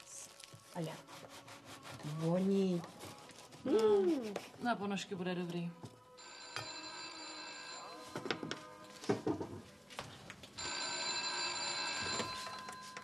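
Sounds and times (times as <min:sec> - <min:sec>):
rotary telephone ringing: 0:06.2 - 0:08.1, 0:10.6 - 0:13.0.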